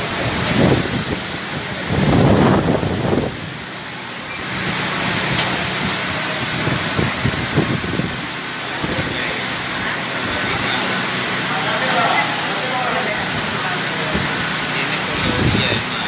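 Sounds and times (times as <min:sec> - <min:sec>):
wind buffeting microphone: 0:00.0 - 0:03.7, 0:04.6 - 0:09.2, 0:15.1 - 0:15.9
strong wind gusts: 0:00.0 - 0:03.8, 0:05.7 - 0:09.2, 0:15.1 - 0:15.9
heavy rain: 0:00.0 - 0:16.0.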